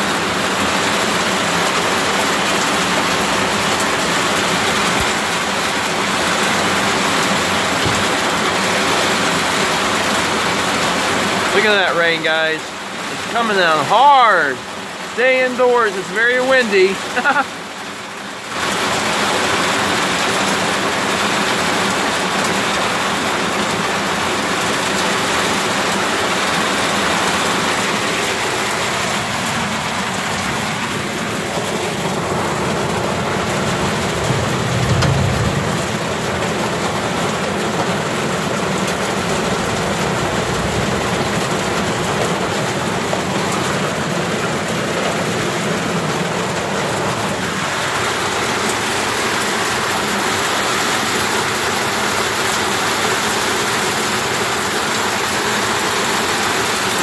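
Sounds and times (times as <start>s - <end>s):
heavy rain pouring: 0.0s - 57.0s
low rumble: 32.3s - 37.6s, 38.7s - 42.9s.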